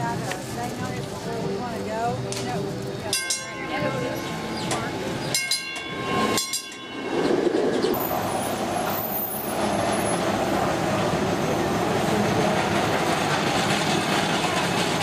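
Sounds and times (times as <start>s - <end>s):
streetcar wheels rumbling on track: 0.0s - 15.0s.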